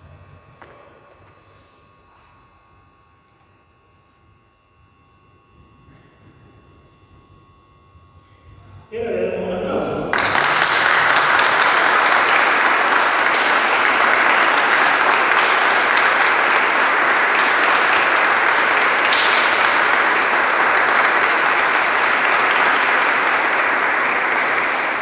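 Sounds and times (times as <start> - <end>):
congregation applauding: 10.0 - 25.0.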